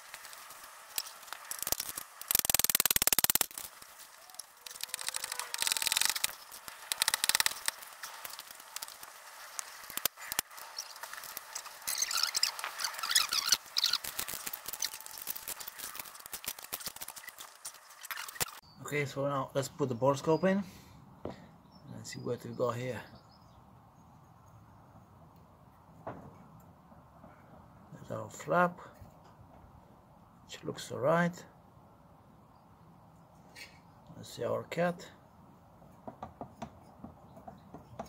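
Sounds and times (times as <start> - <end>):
fast dense clicking: 0.0 - 18.6
metal clicks and scrapes: 0.0 - 18.6.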